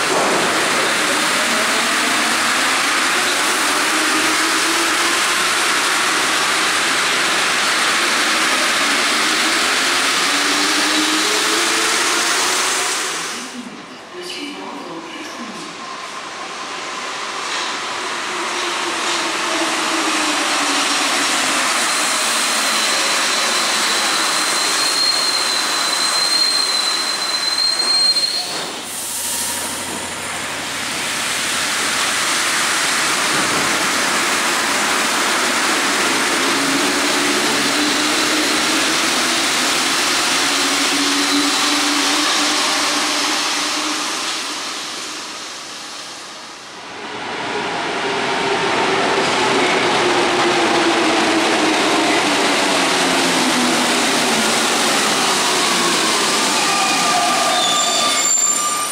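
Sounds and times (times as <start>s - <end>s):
thin high wheel squeal: 22.8s - 29.7s, 56.6s - 58.9s.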